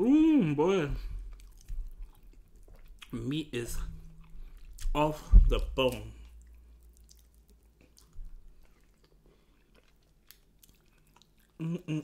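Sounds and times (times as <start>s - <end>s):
person chewing: 0.9s - 12.0s
person speaking: 3.1s - 4.0s, 4.8s - 6.4s
wet mouth clicks and smacks: 5.9s - 8.3s.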